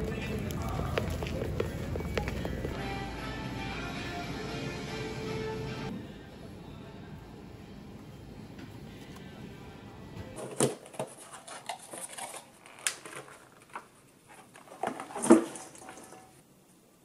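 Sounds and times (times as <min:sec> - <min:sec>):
shop room noise: 0:00.0 - 0:17.0
plastic rattling on metal bowl: 0:10.4 - 0:16.4.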